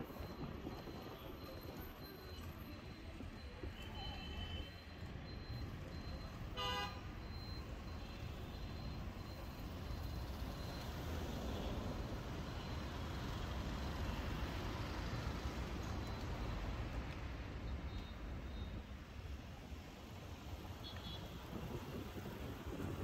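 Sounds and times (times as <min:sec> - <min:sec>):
passing vehicles hum: 0:05.1 - 0:23.0
vehicle horn honk: 0:06.6 - 0:07.1.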